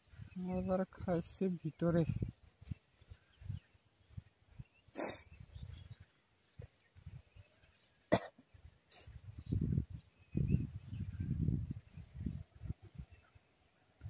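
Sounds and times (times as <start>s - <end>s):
short cough: 8.1s - 8.4s.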